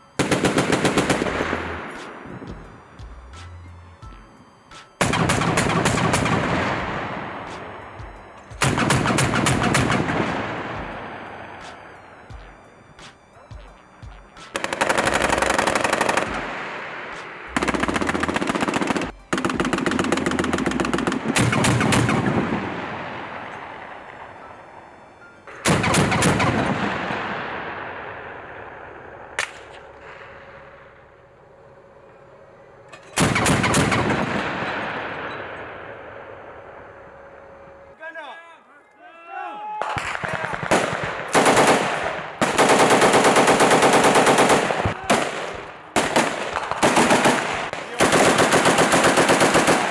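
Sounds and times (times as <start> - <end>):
cannon firing rapid bursts: 0.2 - 1.8, 5.0 - 7.1, 8.6 - 10.9, 14.5 - 22.8, 25.6 - 27.7, 33.2 - 35.1, 39.9 - 49.9
echo of gunfire: 0.2 - 2.3, 5.0 - 7.8, 8.6 - 11.6, 14.5 - 24.3, 25.5 - 30.9, 33.2 - 36.8, 39.8 - 49.9
single sharp shot: 29.4 - 30.2.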